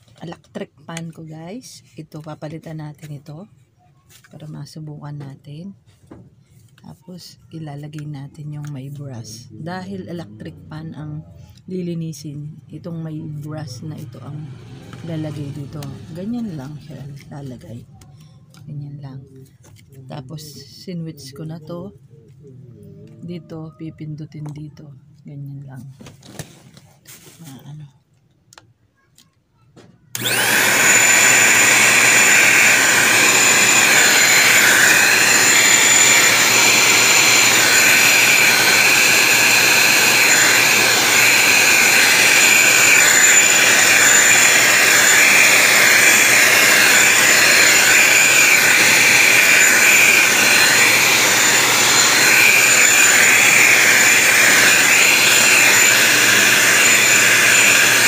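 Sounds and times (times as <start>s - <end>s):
handheld vacuum cleaner running: 13.9s - 17.2s, 30.1s - 58.0s.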